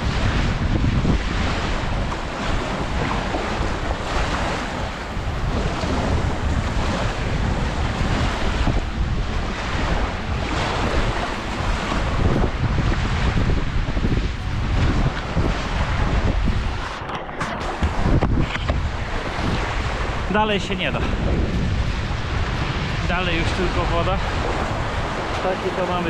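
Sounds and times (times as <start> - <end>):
sea waves washing onto shore: 0.0 - 26.0
wind buffeting microphone: 0.0 - 26.0.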